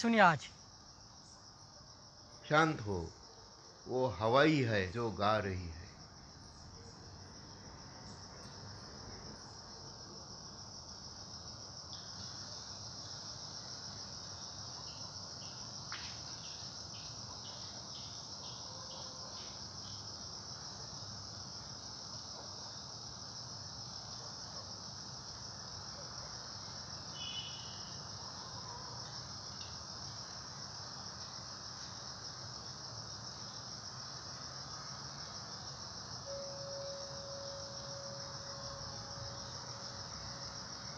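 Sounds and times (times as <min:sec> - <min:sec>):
low background hiss: 0:00.0 - 0:18.8, 0:19.4 - 0:40.9
crickets chirring: 0:00.0 - 0:40.9
faint ticks: 0:11.8 - 0:12.2, 0:28.9 - 0:29.9
steady low tone: 0:36.2 - 0:40.9.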